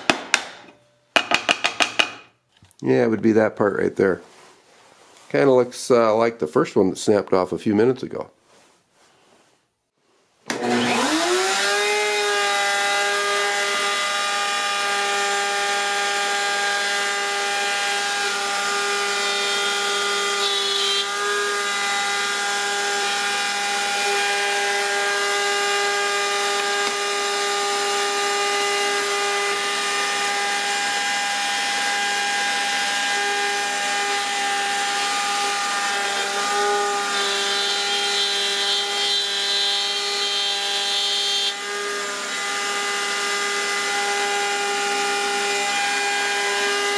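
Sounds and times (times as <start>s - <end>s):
router high whine: 10.5s - 46.9s.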